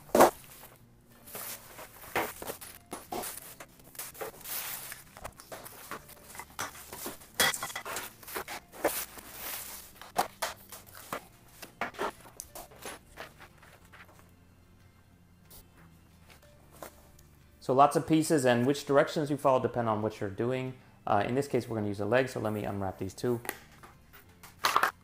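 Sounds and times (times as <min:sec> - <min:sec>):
paper and cardboard rustling: 0:00.0 - 0:14.3.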